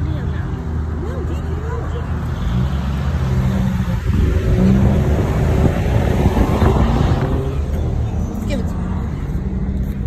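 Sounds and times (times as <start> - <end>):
car engine: 0.0 - 10.0
road rumble: 0.0 - 10.0
wind noise: 3.8 - 7.7.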